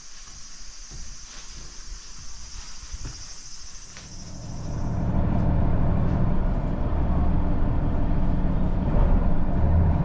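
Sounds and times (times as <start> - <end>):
diesel railcar engine droning: 4.3 - 10.0.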